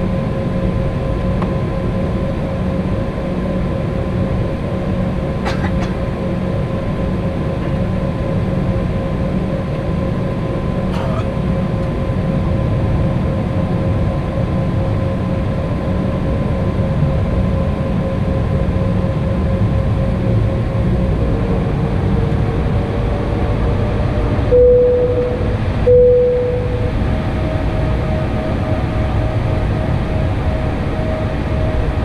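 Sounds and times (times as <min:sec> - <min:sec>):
jet engine rumble and whine: 0:00.0 - 0:32.0
short loud tones: 0:24.6 - 0:26.9.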